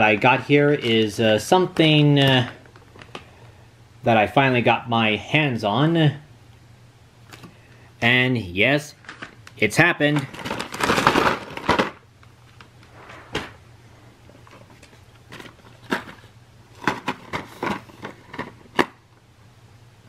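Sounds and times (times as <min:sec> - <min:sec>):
paper mailer bag rustling: 0:00.0 - 0:03.3, 0:09.0 - 0:13.4
low steady hum: 0:00.0 - 0:20.0
plastic packs clicking and tapping: 0:01.7 - 0:03.3, 0:09.0 - 0:12.7, 0:16.8 - 0:19.0.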